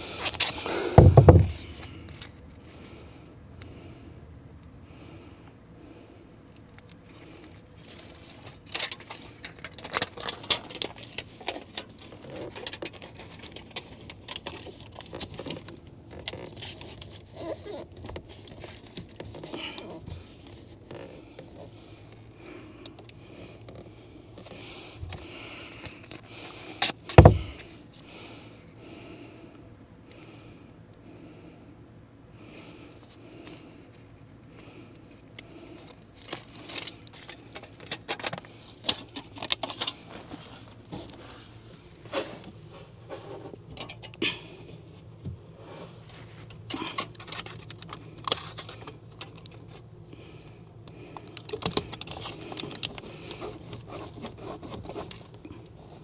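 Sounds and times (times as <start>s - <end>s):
handling noises crackling and scraping: 0.0s - 3.0s, 6.5s - 28.2s, 32.9s - 56.0s
heavy thump: 0.9s - 1.6s, 27.2s - 27.6s.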